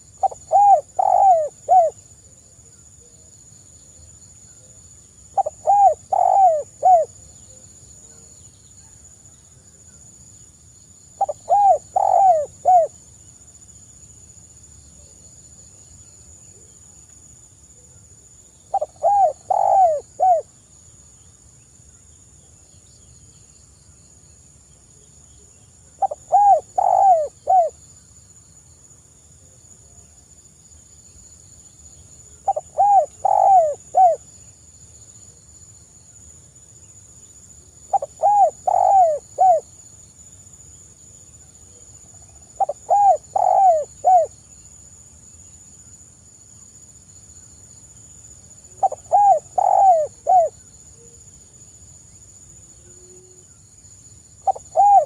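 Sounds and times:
dove cooing: 0.0s - 2.0s, 5.4s - 7.1s, 11.2s - 12.9s, 18.7s - 20.5s, 26.0s - 27.8s, 32.4s - 34.2s, 37.9s - 39.7s, 42.6s - 44.3s, 48.8s - 50.6s, 54.4s - 55.0s.

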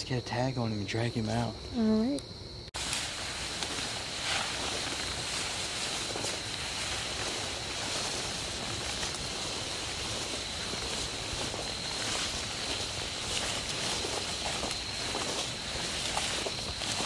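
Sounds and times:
continuous rustling hiss: 0.0s - 17.0s
crickets trilling: 0.0s - 17.0s.

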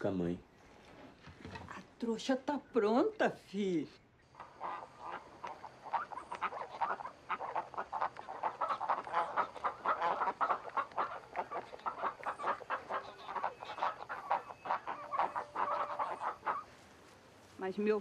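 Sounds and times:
ducks quacking: 4.3s - 17.1s
hen clucking: 4.4s - 16.8s.

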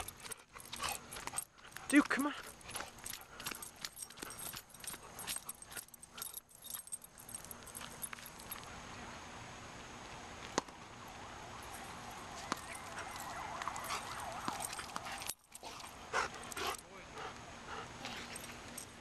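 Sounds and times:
wavering high wail: 11.5s - 15.3s.

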